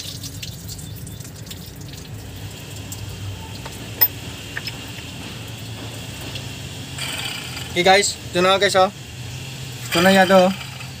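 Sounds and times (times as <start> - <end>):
water trickling and dripping: 0.0 - 6.9.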